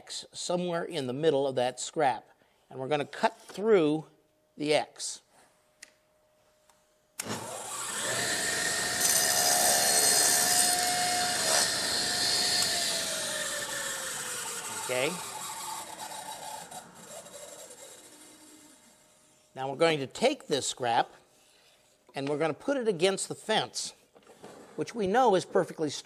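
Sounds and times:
table saw motor whining: 7.2s - 19.3s.

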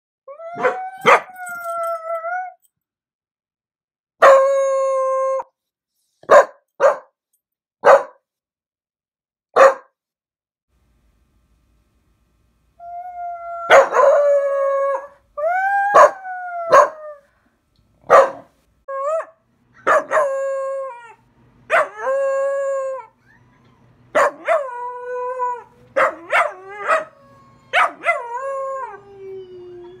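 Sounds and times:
puppy howling with yips: 0.3s - 2.6s, 12.8s - 17.0s, 21.7s - 30.0s.

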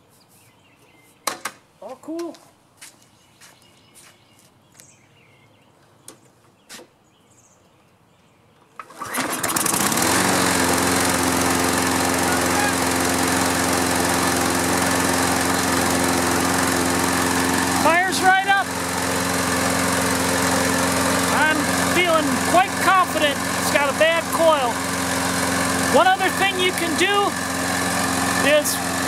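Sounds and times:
lawn mower engine starting: 8.8s - 29.0s.

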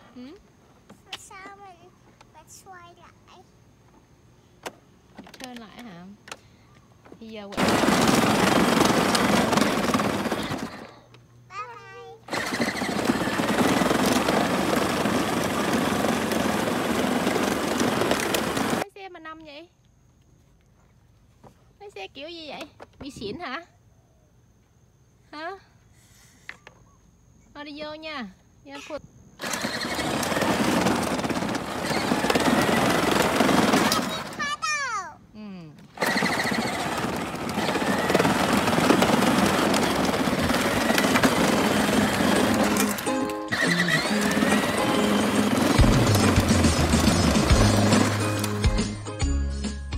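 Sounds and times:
plastic wheels rumbling on road: 7.3s - 11.1s, 11.9s - 18.8s, 29.4s - 35.0s, 35.9s - 49.0s
electric toy car motor whirring: 7.6s - 11.0s, 12.3s - 18.8s, 29.4s - 34.6s, 35.9s - 48.7s
faint electric motor whine: 26.4s - 34.4s.

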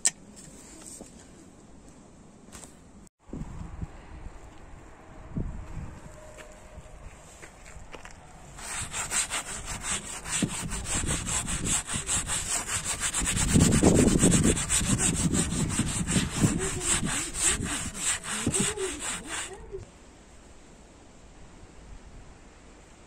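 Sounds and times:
sandpaper scraping a panel: 8.6s - 19.8s.

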